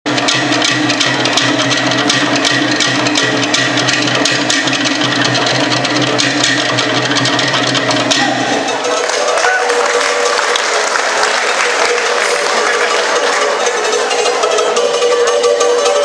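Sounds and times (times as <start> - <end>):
rapid drum strikes: 0.1 - 9.4.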